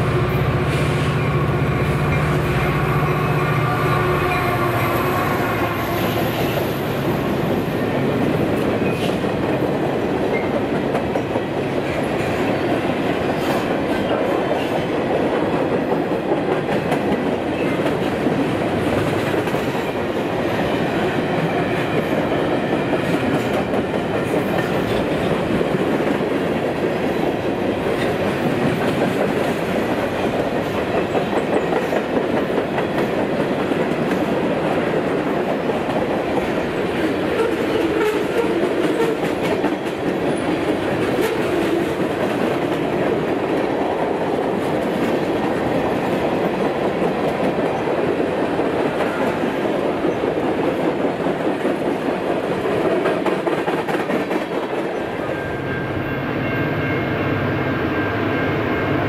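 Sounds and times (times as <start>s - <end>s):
freight train wheels clattering: 8.0s - 55.2s.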